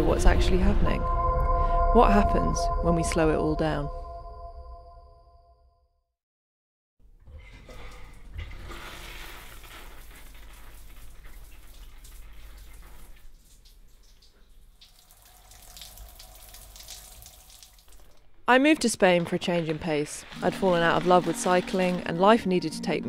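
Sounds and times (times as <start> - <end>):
shower water spraying: 19.8 - 22.4.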